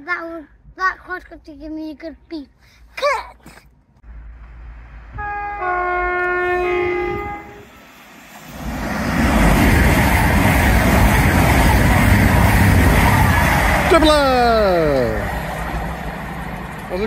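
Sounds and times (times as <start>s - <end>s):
train passing at speed: 4.1s - 17.0s
two-tone train horn: 5.1s - 7.7s.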